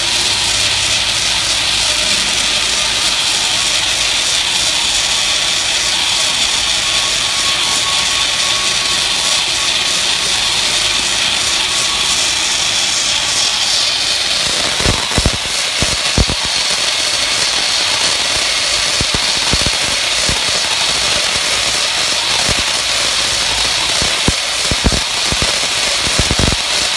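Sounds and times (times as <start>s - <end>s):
tape winding machine hissing: 0.0s - 26.9s.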